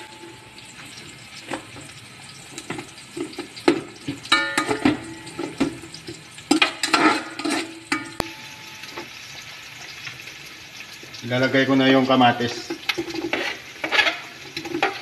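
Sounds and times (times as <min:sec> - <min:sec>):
sizzling oil: 0:00.0 - 0:15.0
metal spoon scraping pot: 0:06.5 - 0:08.4, 0:13.0 - 0:15.0.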